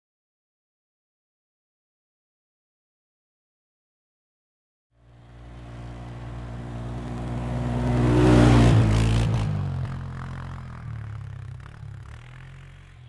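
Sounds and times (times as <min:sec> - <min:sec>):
atv engine driving past: 0:05.0 - 0:13.0.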